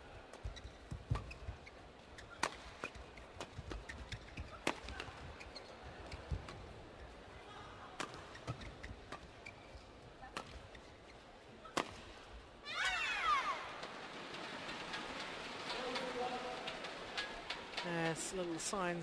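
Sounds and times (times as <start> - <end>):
shoes squeaking on court: 0.3 - 7.4, 8.0 - 11.3
racket hitting shuttlecock: 2.2 - 5.2, 8.0 - 9.3.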